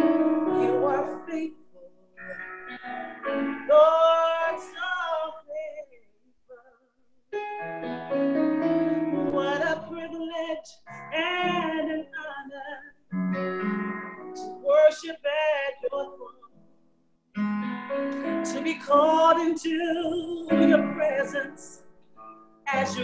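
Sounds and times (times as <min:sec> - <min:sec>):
woman singing: 0:00.0 - 0:02.4, 0:03.6 - 0:06.9, 0:09.1 - 0:13.0, 0:14.4 - 0:16.5, 0:18.4 - 0:21.8, 0:22.7 - 0:23.0
piano accompaniment: 0:00.0 - 0:05.4, 0:07.4 - 0:16.7, 0:17.4 - 0:23.0.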